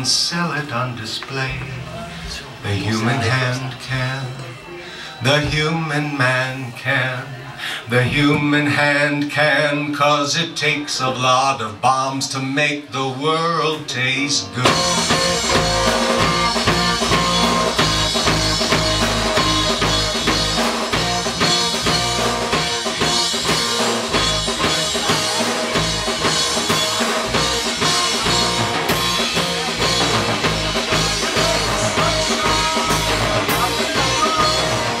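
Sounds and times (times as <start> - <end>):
live rock band playing: 14.4 - 35.0
drum hits: 14.6 - 35.0.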